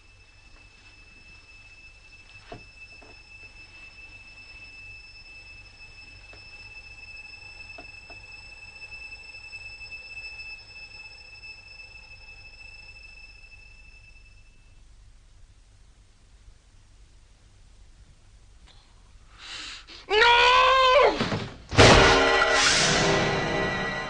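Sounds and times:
high-pitched whine: 0.0s - 15.0s, 21.8s - 24.0s
low hum: 0.0s - 19.3s, 21.8s - 24.0s.

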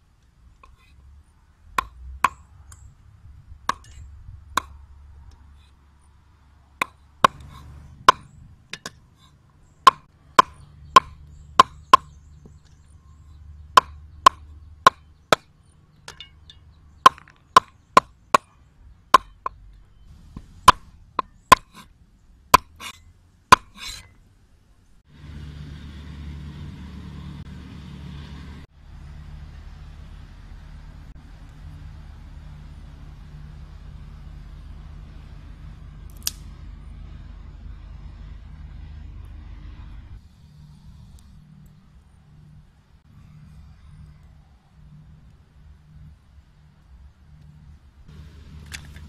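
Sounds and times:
cleaver chopping on wooden board: 6.8s - 9.0s, 9.9s - 12.1s, 19.1s - 19.6s, 22.6s - 24.0s.

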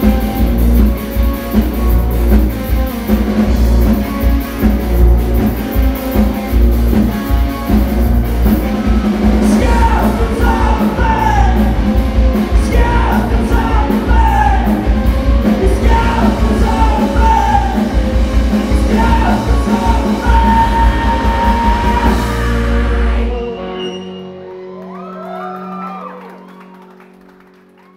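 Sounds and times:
live rock band playing: 0.0s - 27.8s
man singing: 9.3s - 23.9s.

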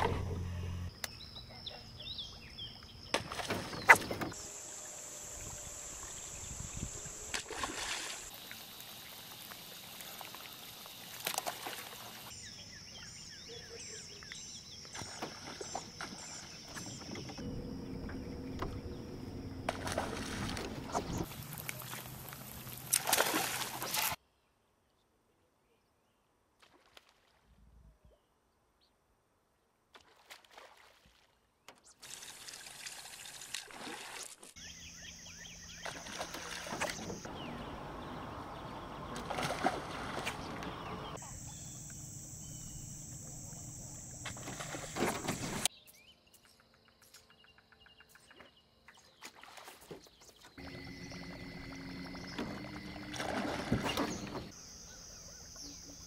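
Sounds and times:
water splashing and sloshing: 3.0s - 5.0s, 5.6s - 12.4s, 14.8s - 24.2s, 26.6s - 27.5s, 29.9s - 34.6s, 35.8s - 42.0s, 43.2s - 45.7s, 48.2s - 54.6s.

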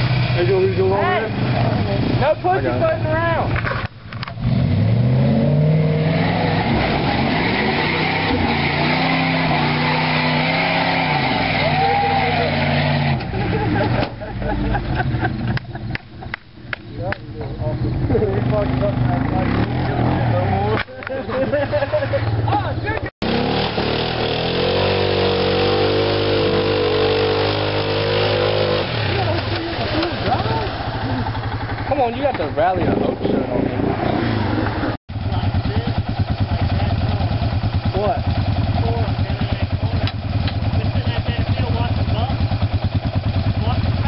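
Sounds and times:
pickup truck engine revving: 0.0s - 20.7s, 23.2s - 35.0s.

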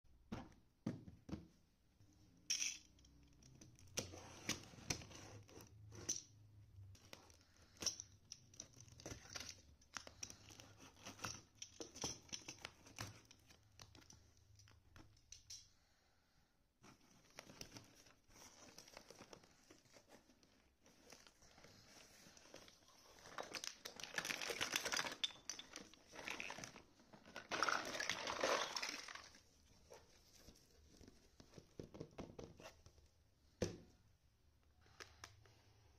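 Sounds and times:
cardboard crinkling: 16.8s - 31.9s
small taps and knocks: 31.0s - 34.0s.

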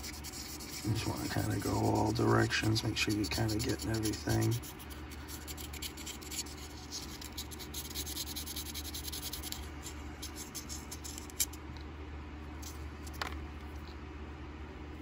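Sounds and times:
sandpaper rubbing on metal: 0.0s - 11.4s.

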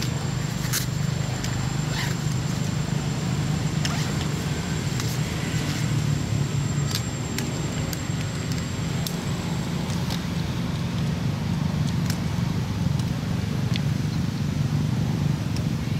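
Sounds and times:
thin high whine: 0.0s - 11.6s
steady low hum: 0.0s - 15.9s.

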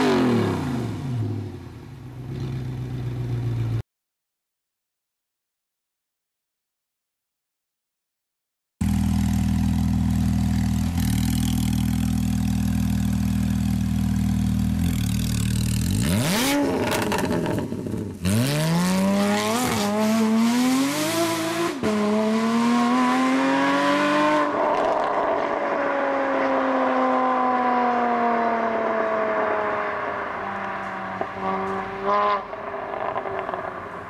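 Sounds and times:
sports car engine idling: 8.8s - 15.9s
car accelerating with upshifts: 14.2s - 34.0s.

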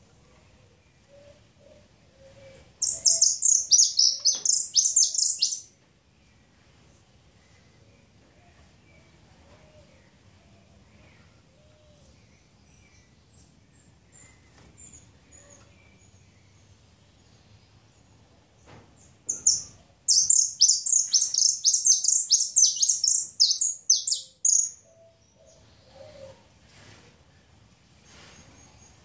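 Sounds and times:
finch singing: 2.8s - 5.7s, 19.3s - 24.9s.

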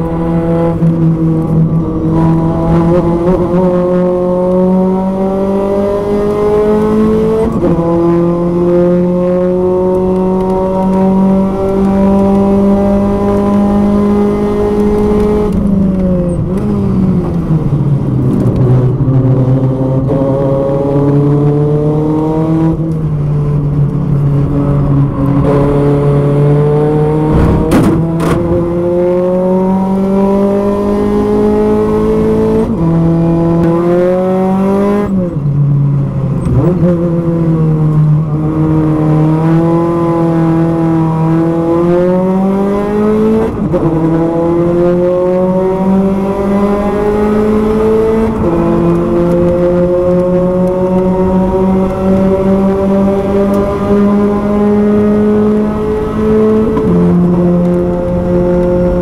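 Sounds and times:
race car engine shifting gears: 0.0s - 59.0s
sharp knocks: 27.3s - 28.4s.

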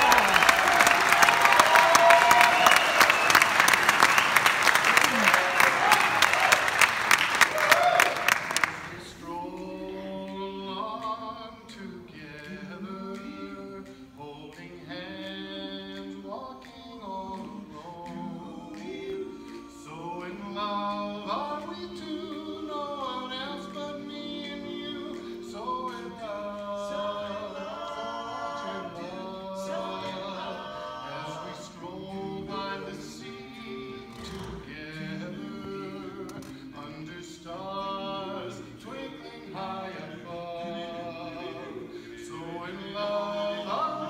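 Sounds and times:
men singing a cappella: 8.9s - 44.0s.

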